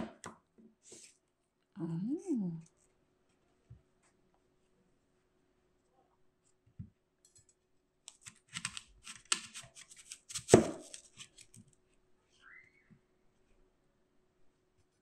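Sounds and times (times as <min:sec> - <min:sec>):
knife crunching through apple: 0:08.1 - 0:11.6.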